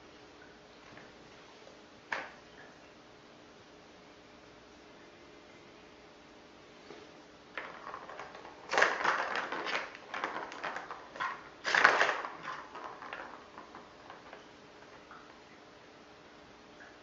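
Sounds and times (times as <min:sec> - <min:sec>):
plastic ball rolling and rattling: 0:07.5 - 0:15.2.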